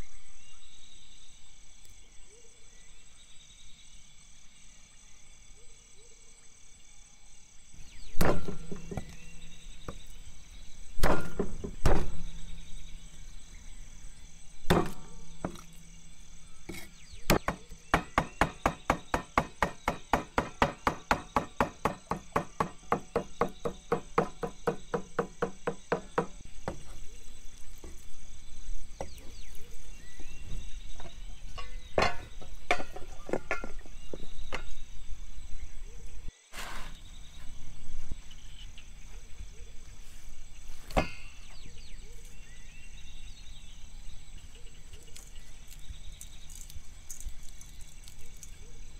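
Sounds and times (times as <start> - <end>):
insects chirring: 0.0 - 48.9
cleaver chopping on wooden block: 11.0 - 12.2, 14.7 - 15.8, 16.7 - 26.8.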